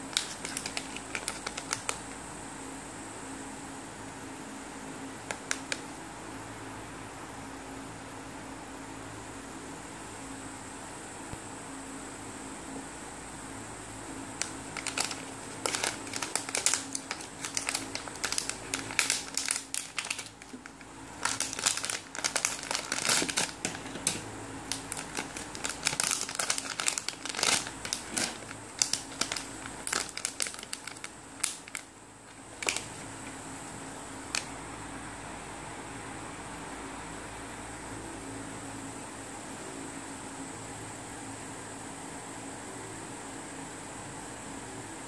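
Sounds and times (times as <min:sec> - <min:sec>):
packaging bags crinkling: 0:00.0 - 0:02.2, 0:14.4 - 0:31.9, 0:32.5 - 0:33.1.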